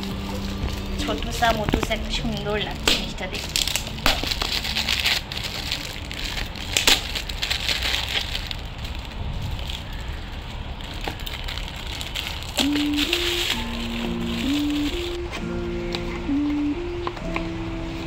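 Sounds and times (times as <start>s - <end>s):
background music: 0.0s - 6.6s, 12.6s - 18.0s
foil wrap crinkling and tearing: 0.0s - 15.2s.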